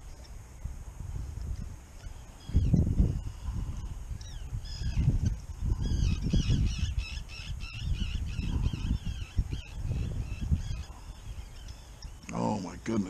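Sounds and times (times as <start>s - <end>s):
wind rumble on microphone: 0.0s - 13.0s
gulls and ducks calling: 2.0s - 12.3s.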